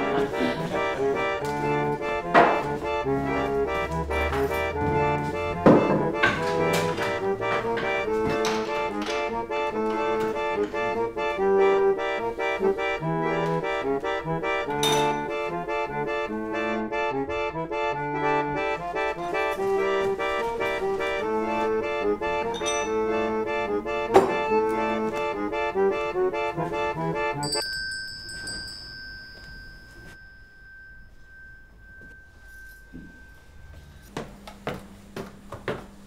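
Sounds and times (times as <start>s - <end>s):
accordion music: 0.0s - 27.6s
high ringing tone: 22.5s - 23.3s, 27.4s - 34.5s.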